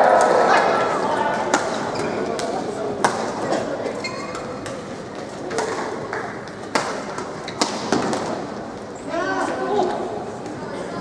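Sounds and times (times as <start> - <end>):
murmur in a hall: 0.0 - 11.0
racket striking shuttlecock: 5.5 - 8.4.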